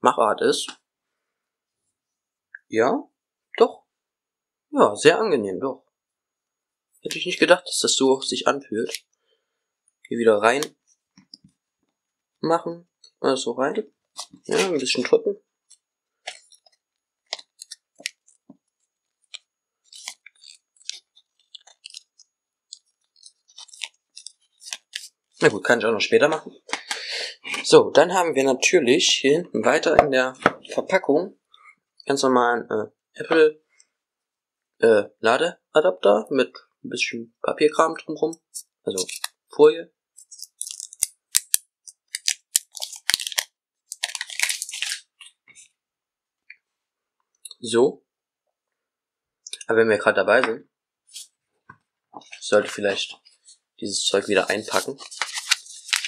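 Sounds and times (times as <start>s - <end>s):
cardboard packaging crinkling: 19.2s - 25.2s, 39.0s - 39.3s, 40.2s - 45.4s, 54.2s - 56.0s.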